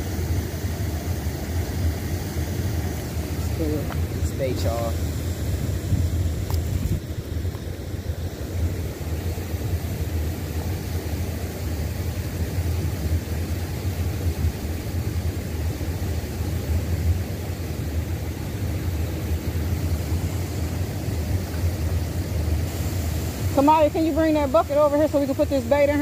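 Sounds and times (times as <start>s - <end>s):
wind buffeting microphone: 3.0s - 8.9s.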